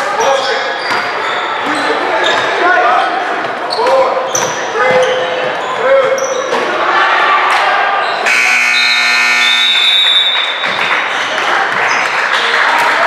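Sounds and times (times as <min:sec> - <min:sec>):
gym crowd noise: 0:00.0 - 0:13.0
scoreboard buzzer: 0:08.2 - 0:10.5.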